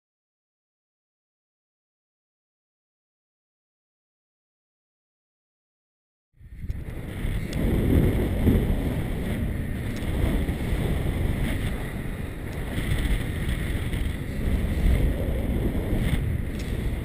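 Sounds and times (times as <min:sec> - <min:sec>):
wind buffeting microphone: 0:06.4 - 0:17.0
faint ticks: 0:09.8 - 0:10.9, 0:11.5 - 0:15.4, 0:16.0 - 0:17.0.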